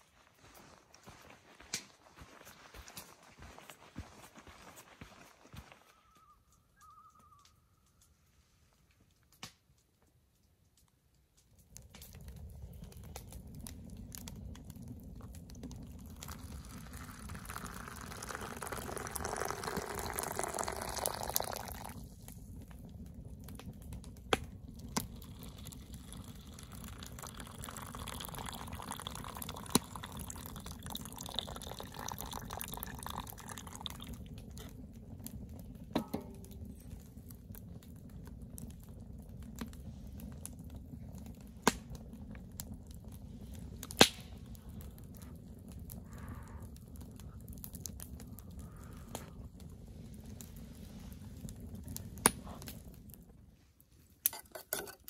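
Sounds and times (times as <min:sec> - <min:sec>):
wood fire crackling: 0:05.6 - 0:55.0
hot liquid pouring into plastic cup: 0:13.3 - 0:36.7.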